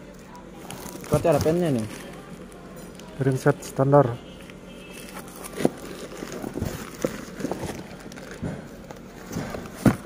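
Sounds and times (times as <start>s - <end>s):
plastic wrap rustling: 0.1s - 10.0s
cardboard boxes knocking: 6.4s - 10.0s.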